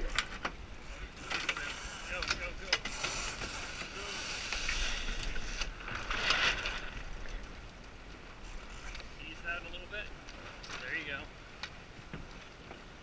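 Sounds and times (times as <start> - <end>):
water rushing along hull: 0.0 - 13.0.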